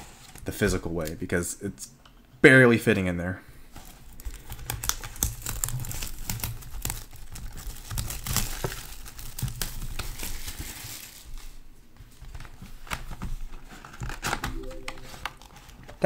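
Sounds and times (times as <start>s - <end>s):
plastic wrapping crinkling: 4.1s - 11.6s.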